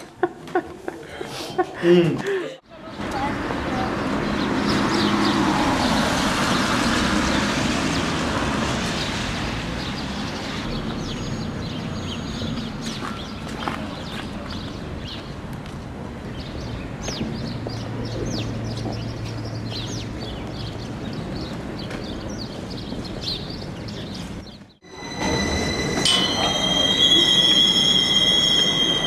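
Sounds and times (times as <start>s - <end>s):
street noise: 0.0s - 29.0s
high falling chirps: 24.8s - 29.0s
train wheels squealing: 24.8s - 29.0s.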